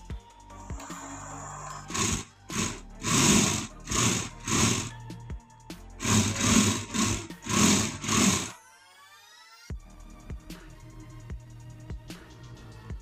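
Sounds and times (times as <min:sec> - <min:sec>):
toy car electric motors whirring: 0:00.8 - 0:05.0, 0:06.0 - 0:08.5.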